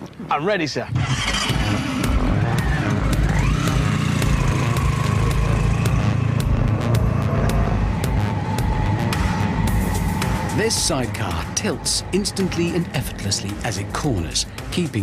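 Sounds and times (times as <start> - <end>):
motorcycle engine pulling away: 1.0 - 10.5.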